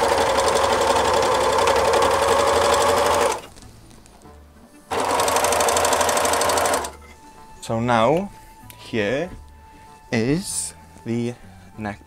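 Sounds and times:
sewing machine stitching: 0:00.0 - 0:03.5, 0:04.9 - 0:07.0.

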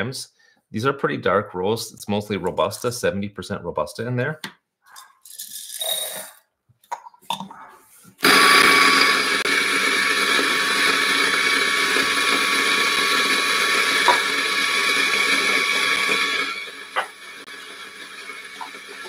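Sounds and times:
electric coffee grinder grinding: 0:05.4 - 0:06.3, 0:08.2 - 0:19.0.

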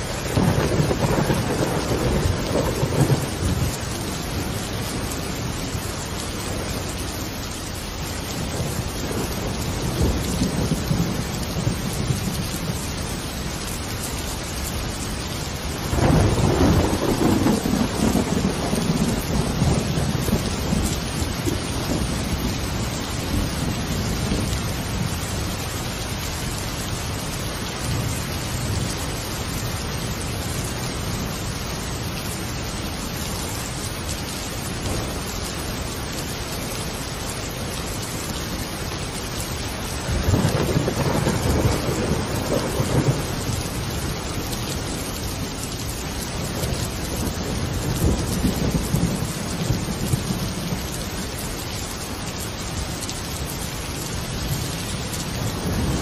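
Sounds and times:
rolling thunder: 0:00.0 - 0:05.6, 0:08.4 - 0:12.8, 0:15.8 - 0:25.3, 0:39.9 - 0:45.0, 0:46.5 - 0:50.9, 0:54.4 - 0:56.0
steady rain: 0:00.0 - 0:56.0.

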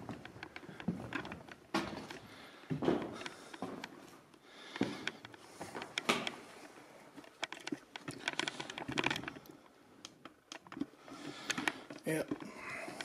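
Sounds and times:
camera handling clicks and rustles: 0:04.3 - 0:13.0.

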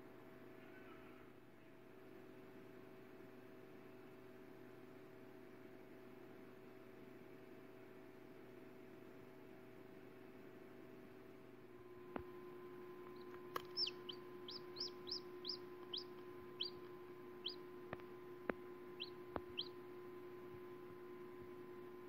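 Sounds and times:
steady low hum: 0:11.4 - 0:22.0
chick peeping: 0:13.0 - 0:18.0, 0:19.0 - 0:19.8.

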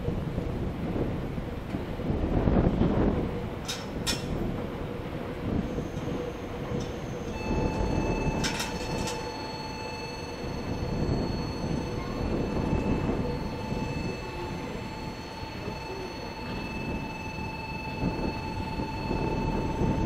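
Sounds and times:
train wheels rumbling on rail: 0:00.0 - 0:20.0
steady whine: 0:05.4 - 0:20.0.

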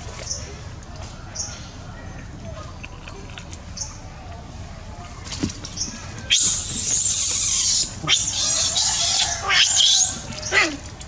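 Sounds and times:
monkey screaming: 0:06.3 - 0:10.8.

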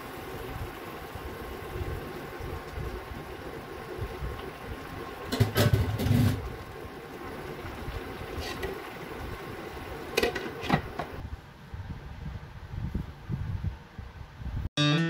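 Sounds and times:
stew simmering in a frying pan: 0:00.0 - 0:11.2
spatula stirring and scraping: 0:08.3 - 0:08.9.

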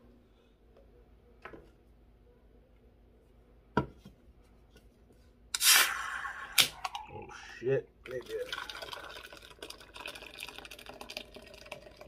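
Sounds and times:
can cracked open with hiss: 0:05.6 - 0:06.8.

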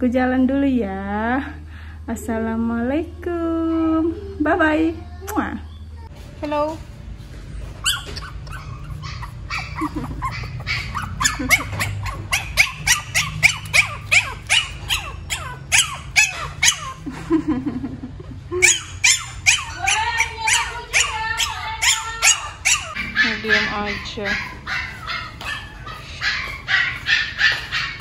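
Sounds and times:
puppy yipping and whining: 0:07.8 - 0:17.1, 0:18.6 - 0:28.0.

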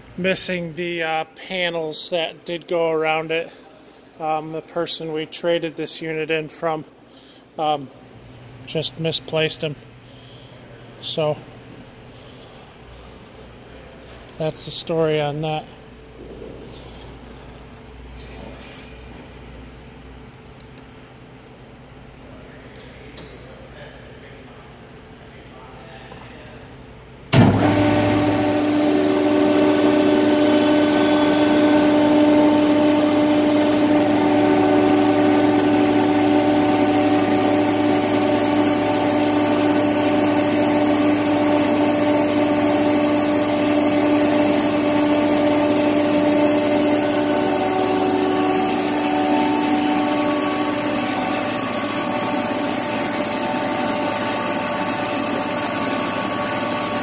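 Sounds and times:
air compressor running: 0:27.3 - 0:57.0.

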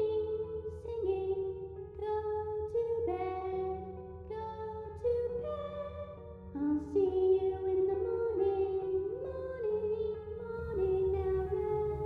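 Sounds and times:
girl singing slow melody: 0:00.0 - 0:12.0
low steady drone: 0:10.4 - 0:12.0.

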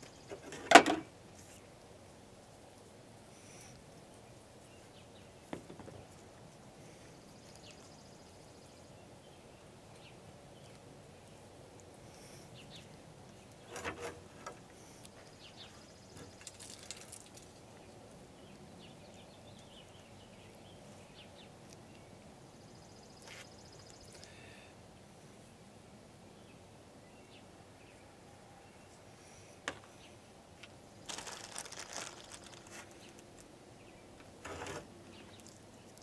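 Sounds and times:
faint bird chirping: 0:02.7 - 0:30.5.

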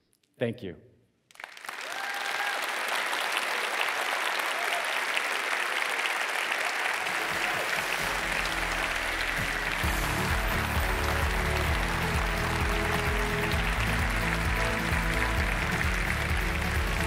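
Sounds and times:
audience applauding: 0:01.3 - 0:17.0
music with low bass line: 0:09.5 - 0:17.0.

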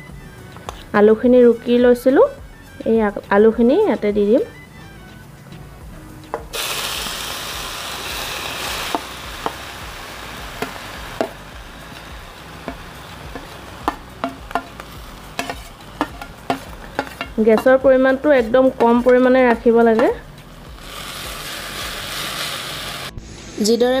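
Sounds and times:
potato sizzling in hot oil: 0:06.5 - 0:23.6
steel spoon tapping steel bowl: 0:12.6 - 0:20.2.

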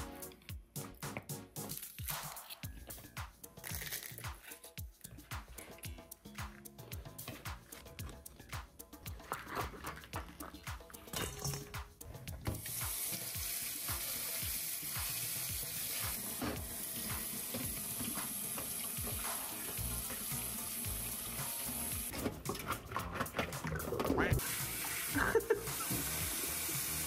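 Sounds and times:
tap water splashing in sink: 0:15.0 - 0:22.6.

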